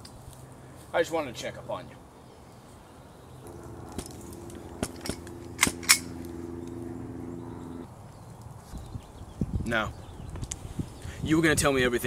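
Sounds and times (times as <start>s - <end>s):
steady low drone: 3.4s - 7.9s
pistol metallic clicks: 4.8s - 6.2s.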